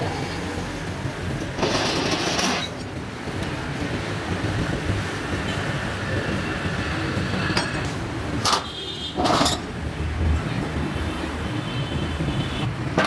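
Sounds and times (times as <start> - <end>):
steel rollers rumbling: 0.0 - 8.6.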